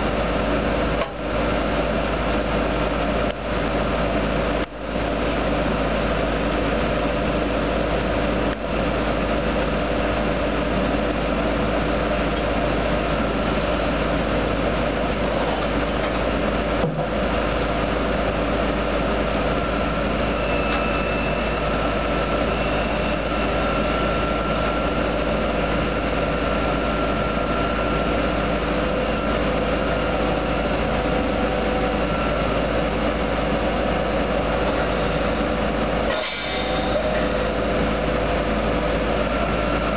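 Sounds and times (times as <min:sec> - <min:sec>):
drilling rig engine drone: 0:00.0 - 0:39.9
faint high whine: 0:19.4 - 0:37.6.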